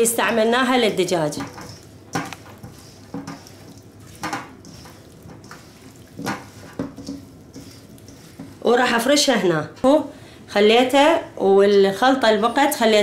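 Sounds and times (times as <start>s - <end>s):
wet squishing and rustling: 1.0s - 8.7s
vegetables knocking against bowl: 1.3s - 7.3s.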